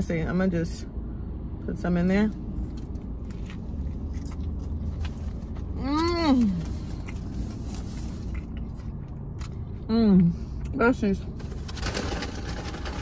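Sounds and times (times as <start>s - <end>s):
low rumble of car: 0.0s - 13.0s
woman chewing food: 2.7s - 5.8s.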